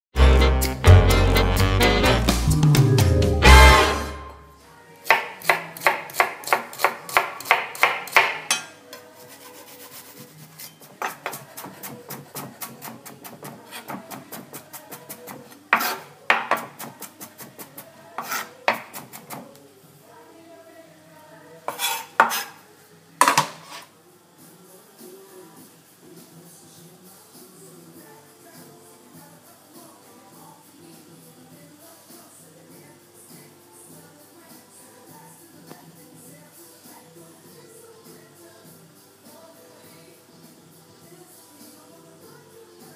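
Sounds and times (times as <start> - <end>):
music jingle: 0.2 - 4.6
knife chopping on wooden board: 5.1 - 8.6, 11.0 - 17.1, 18.2 - 19.4, 21.7 - 22.5.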